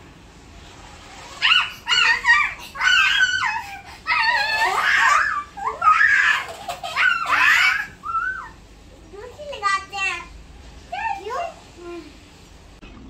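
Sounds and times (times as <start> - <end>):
girls laughing and squealing: 1.4 - 8.6.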